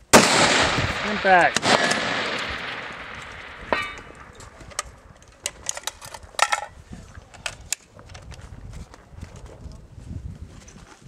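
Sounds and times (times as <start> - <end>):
rifle shot echo: 0.1 - 5.6.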